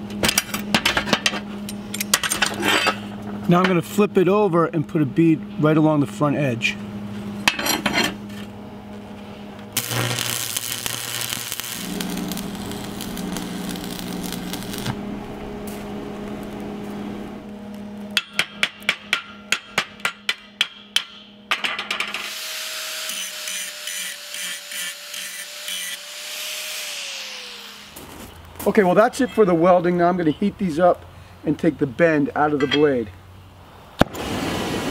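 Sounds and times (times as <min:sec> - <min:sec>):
welding arc crackling and hissing: 0:09.7 - 0:18.0, 0:22.1 - 0:28.7
angle grinder whining: 0:09.8 - 0:17.9, 0:22.1 - 0:28.4
hammer chipping metal: 0:18.2 - 0:22.2.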